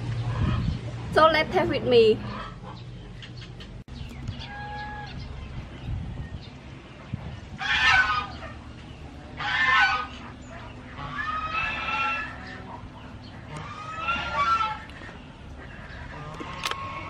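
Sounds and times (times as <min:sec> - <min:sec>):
poultry harsh calls: 0:02.2 - 0:03.7, 0:04.3 - 0:05.5, 0:07.5 - 0:17.0.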